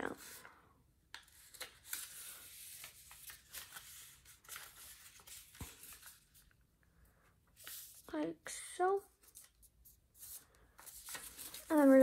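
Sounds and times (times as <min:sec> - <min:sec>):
paper rustling and crinkling: 0:01.1 - 0:06.6, 0:07.5 - 0:08.1, 0:09.1 - 0:12.0.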